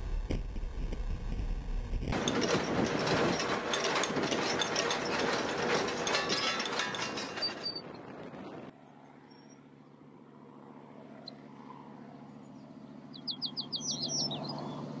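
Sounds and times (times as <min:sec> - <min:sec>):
steady low hum: 0:00.0 - 0:03.8.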